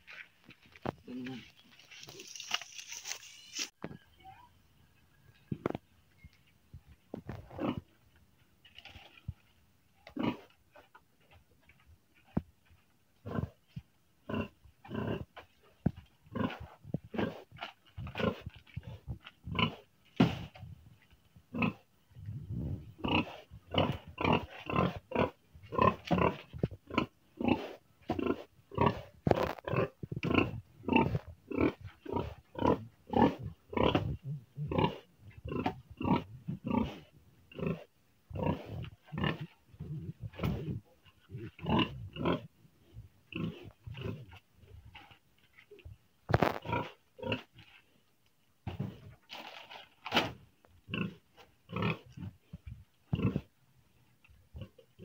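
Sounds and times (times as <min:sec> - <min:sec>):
pigs grunting: 0:10.1 - 0:10.6, 0:14.3 - 0:15.6, 0:16.3 - 0:17.5, 0:18.1 - 0:20.5, 0:21.5 - 0:21.8, 0:22.9 - 0:42.5, 0:43.3 - 0:44.4, 0:50.9 - 0:53.5.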